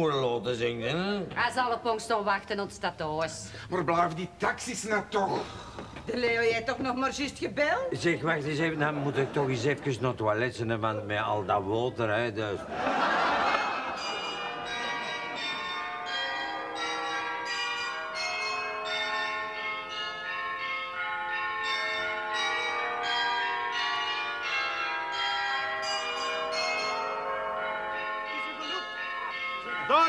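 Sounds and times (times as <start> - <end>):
church bells ringing a peal: 12.8 - 30.0.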